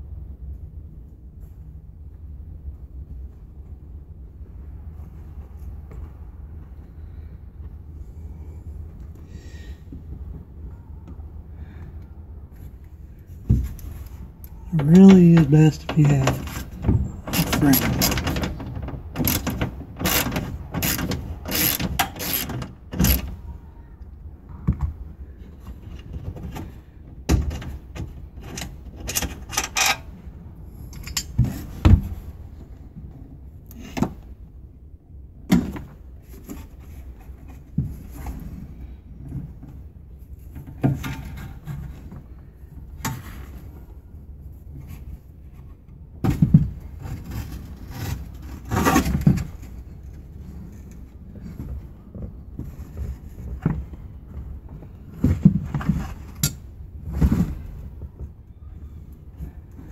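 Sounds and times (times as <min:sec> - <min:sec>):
tools clicking and knocking: 0:14.8 - 0:23.3, 0:27.3 - 0:30.0, 0:30.9 - 0:31.5.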